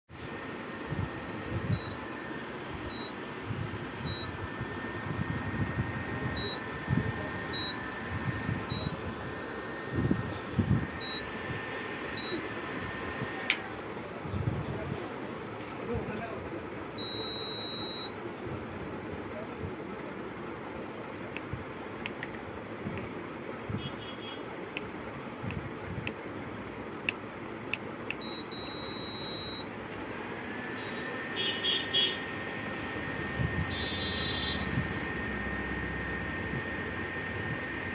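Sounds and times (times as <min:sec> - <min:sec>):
cooling fan hum: 0:00.1 - 0:37.9
high-pitched whine: 0:00.2 - 0:14.1, 0:28.2 - 0:37.9
control panel beeping: 0:01.4 - 0:13.8, 0:16.9 - 0:18.2, 0:27.0 - 0:29.7, 0:31.4 - 0:37.9.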